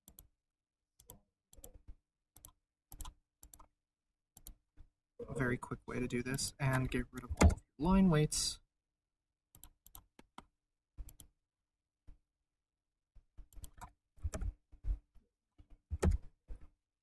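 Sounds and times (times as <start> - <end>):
computer mouse clicks: 1.0 - 1.8, 2.4 - 3.7, 4.4 - 4.6, 9.5 - 11.4, 13.4 - 14.6.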